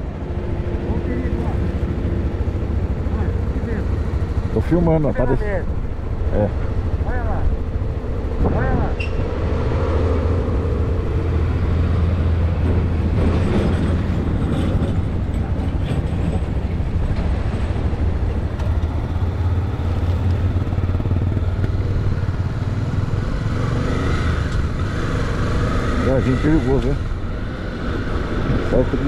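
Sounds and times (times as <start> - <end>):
wind and road noise: 0.0 - 29.0
motorcycle engine running: 16.6 - 28.8.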